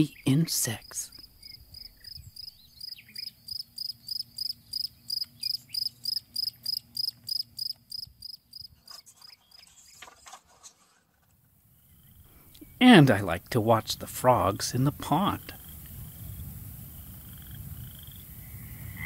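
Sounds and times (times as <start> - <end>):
cricket chirping: 0.8 - 9.7, 11.6 - 12.6, 15.5 - 19.0.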